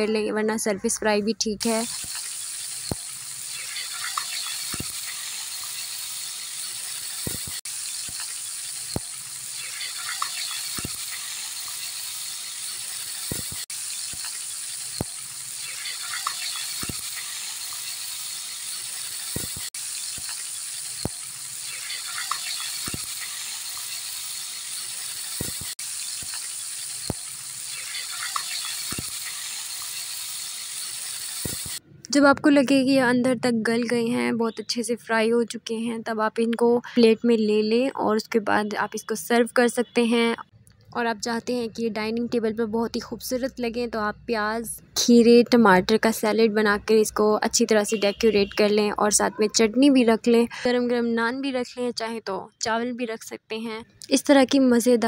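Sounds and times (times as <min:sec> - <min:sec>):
fish sizzling in hot oil: 0:01.6 - 0:31.8.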